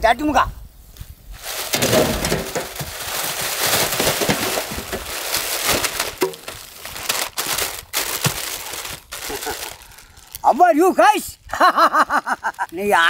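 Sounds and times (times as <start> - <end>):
dry plants crackling and snapping: 1.3 - 10.7, 12.0 - 13.0.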